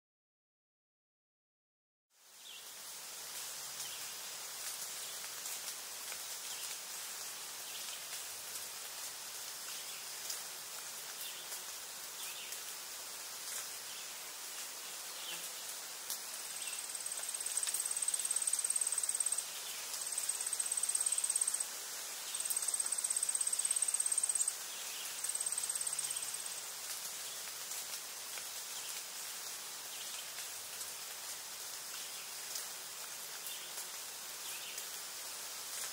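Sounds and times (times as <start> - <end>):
insect chorus hiss: 2.2 - 35.9
loud high insect trill: 16.5 - 26.7.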